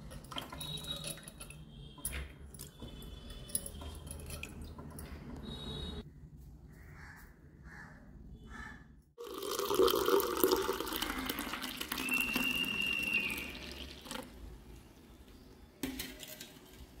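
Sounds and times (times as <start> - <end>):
juice pouring into a cup: 9.2 - 14.3.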